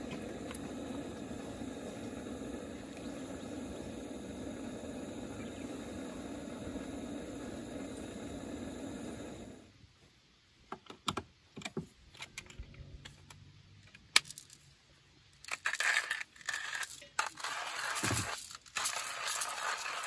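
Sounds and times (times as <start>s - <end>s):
continuous rattling hiss: 0.0s - 20.0s
coffee grinder being handled: 15.4s - 20.0s.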